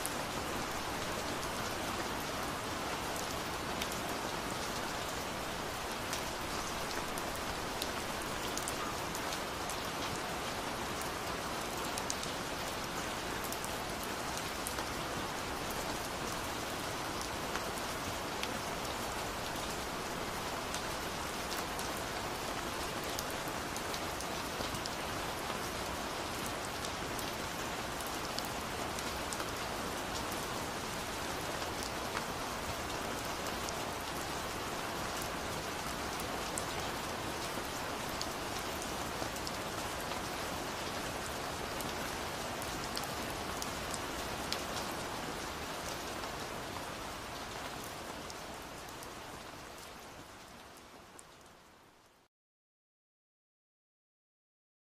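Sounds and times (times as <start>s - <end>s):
steady rain hiss: 0.0s - 52.3s.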